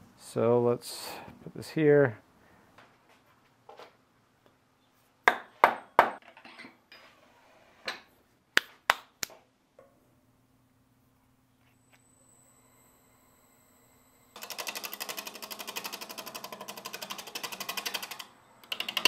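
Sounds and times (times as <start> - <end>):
lathe centres clicking: 14.3 - 19.0.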